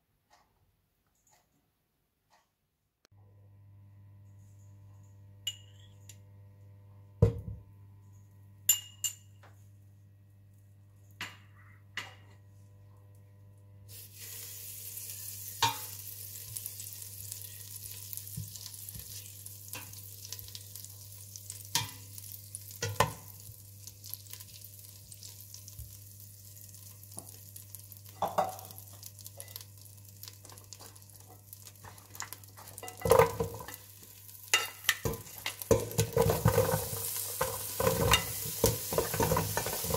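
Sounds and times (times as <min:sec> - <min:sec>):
low steady hum: 0:03.2 - 0:13.9
butter sizzling in a pot: 0:13.9 - 0:39.9
spatula tapping a pot: 0:21.7 - 0:22.0, 0:22.8 - 0:23.3, 0:34.5 - 0:39.9.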